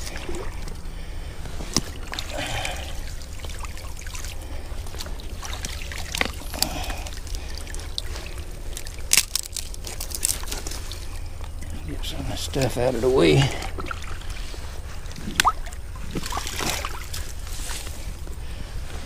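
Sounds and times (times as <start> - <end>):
creek water trickling and splashing: 0.0 - 19.0
wet sticks and mud pulled from water: 0.0 - 19.0.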